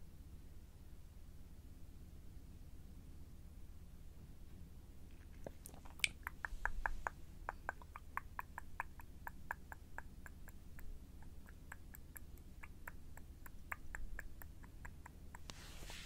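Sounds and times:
wet lip and tongue clicks: 5.1 - 15.5.

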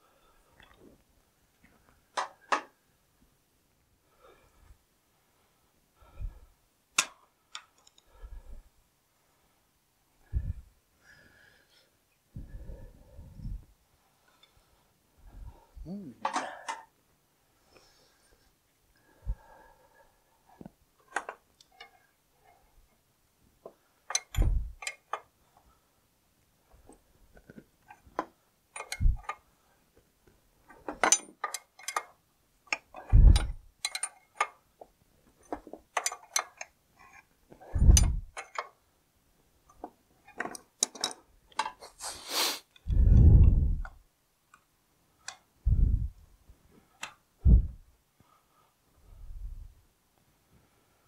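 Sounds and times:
metal tools clicking and clinking: 24.1 - 25.1, 30.9 - 34.6, 35.4 - 37.2, 40.3 - 41.8
dull low thumps: 33.1 - 33.6, 37.8 - 38.3, 42.9 - 43.9, 45.7 - 46.2, 47.4 - 47.8.

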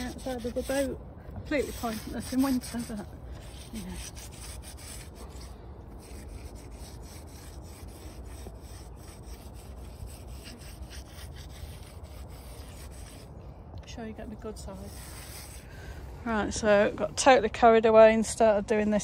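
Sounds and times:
sponge scrubbing: 0.0 - 13.3, 14.5 - 15.6.

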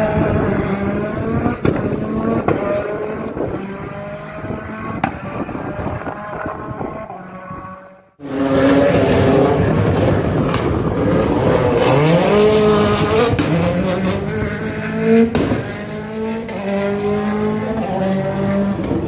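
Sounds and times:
rally car engine revving hard: 0.0 - 19.0.

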